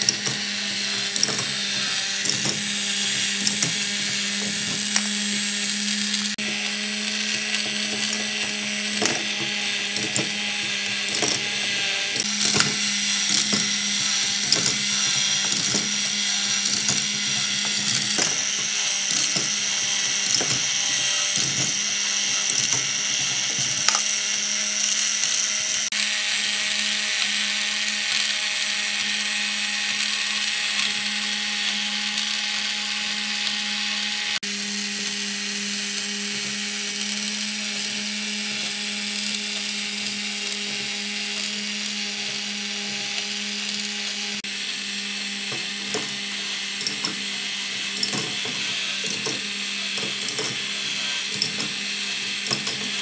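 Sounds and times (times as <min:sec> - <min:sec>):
plastic parts clicking and rattling: 0:00.0 - 0:26.4, 0:45.2 - 0:53.0
toy motor whining: 0:00.0 - 0:53.0.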